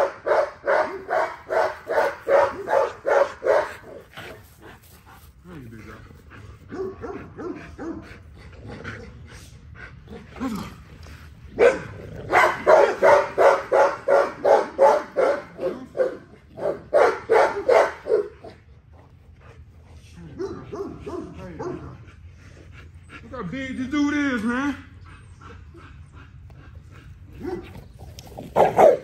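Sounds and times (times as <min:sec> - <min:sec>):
dog barking excitedly: 0:00.0 - 0:04.1, 0:06.7 - 0:08.0, 0:11.6 - 0:18.6, 0:20.4 - 0:21.9, 0:27.4 - 0:27.7, 0:28.6 - 0:29.0.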